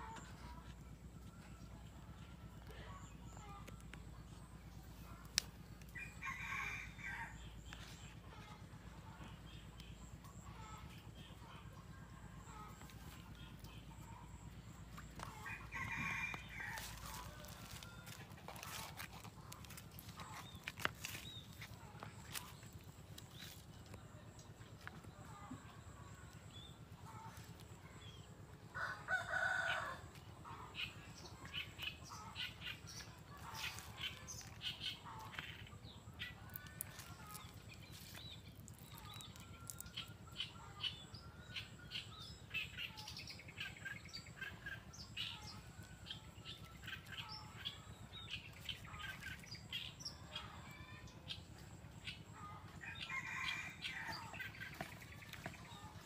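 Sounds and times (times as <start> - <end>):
small birds chirping: 31.4 - 41.0.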